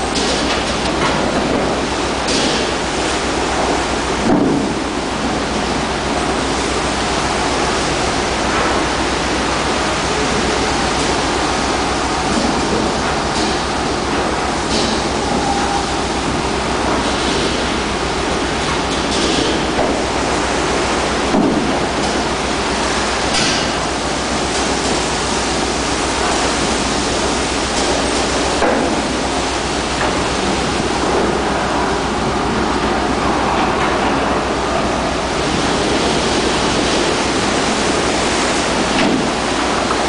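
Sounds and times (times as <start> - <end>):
rough sea rushing over deck: 0.0 - 40.0
water splashes: 0.0 - 40.0.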